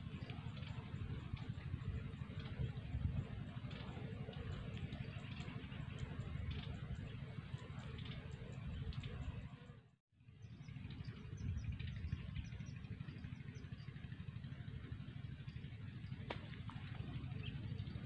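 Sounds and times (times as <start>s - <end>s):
wind rumbling on microphone: 0.0s - 9.7s, 10.4s - 18.0s.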